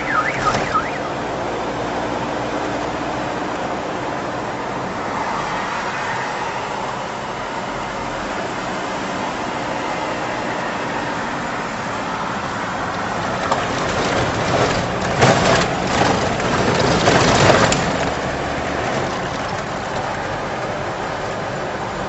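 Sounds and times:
road and engine noise inside car: 0.0 - 22.0.

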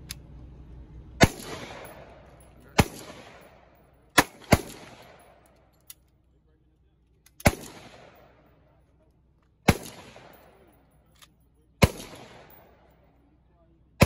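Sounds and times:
pistol shots with echo: 1.2 - 5.5, 7.4 - 8.5, 9.6 - 10.8, 11.8 - 13.0.

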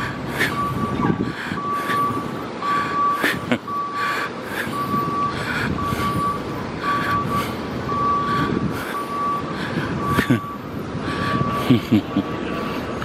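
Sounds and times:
street traffic noise: 0.0 - 13.0
vehicle back-up alarm beeping: 0.0 - 13.0.

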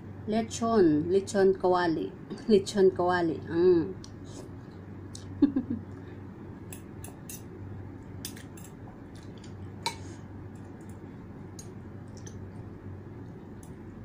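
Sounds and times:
steady low hum: 0.0 - 14.0
cutlery clinking against bowl: 6.7 - 7.5, 8.2 - 8.8.

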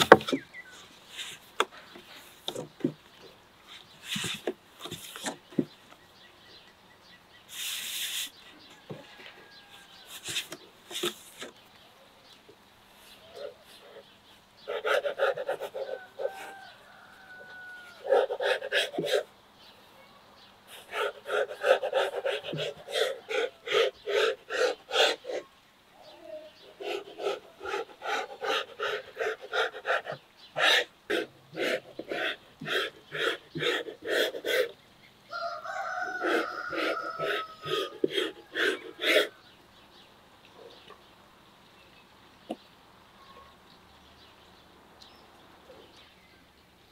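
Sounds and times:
animal panting: 13.2 - 16.7, 18.0 - 19.3, 20.7 - 25.4, 26.6 - 34.8, 36.1 - 39.4.

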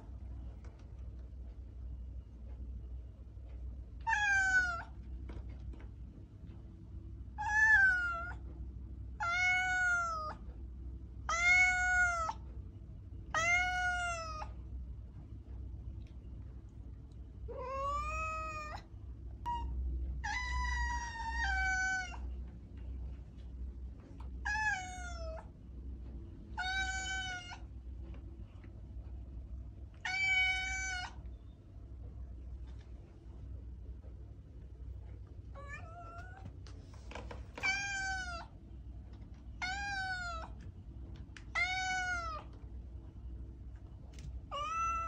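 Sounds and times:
faint low hum: 0.0 - 45.0
cat meowing: 4.0 - 5.0, 7.4 - 8.4, 9.2 - 10.4, 11.3 - 12.4, 13.3 - 14.5, 17.5 - 22.3, 24.4 - 25.5, 26.6 - 27.7, 30.0 - 31.2, 35.6 - 36.5, 37.6 - 38.5, 39.6 - 40.6, 41.5 - 42.5, 44.5 - 45.0.

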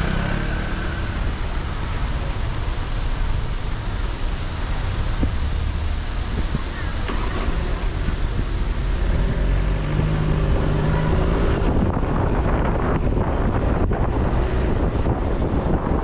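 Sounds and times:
car engine hum: 0.0 - 16.0
road and wind noise: 0.0 - 16.0.

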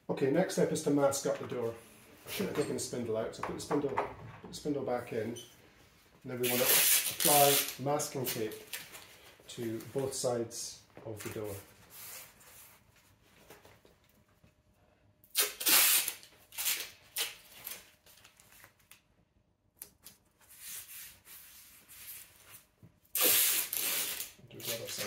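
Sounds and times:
tape ripping off roll: 6.4 - 9.0, 15.3 - 19.0, 23.1 - 25.0
tape rubbing and handling: 6.4 - 9.2, 11.2 - 13.8, 15.3 - 19.0, 19.8 - 25.0.

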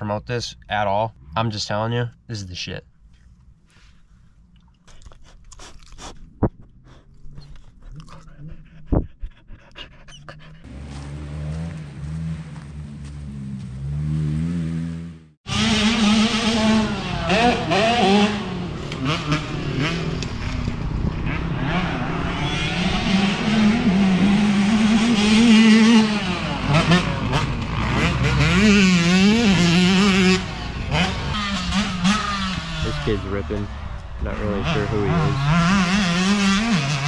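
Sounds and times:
dirt bike engine revving: 10.6 - 37.0.

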